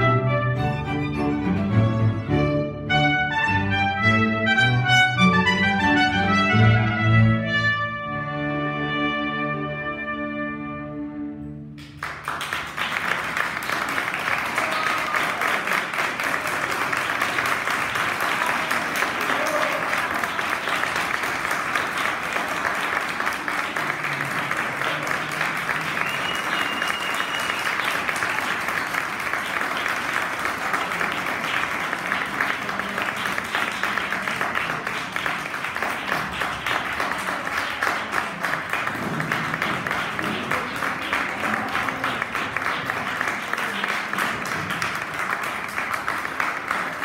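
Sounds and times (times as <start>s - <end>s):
audience applauding: 11.8s - 47.0s.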